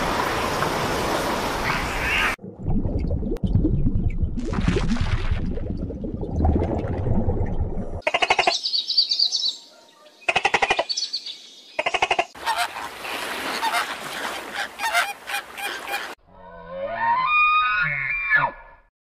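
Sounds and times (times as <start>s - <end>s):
low underwater rumble: 2.4s - 8.0s
flamingos honking: 11.8s - 16.2s.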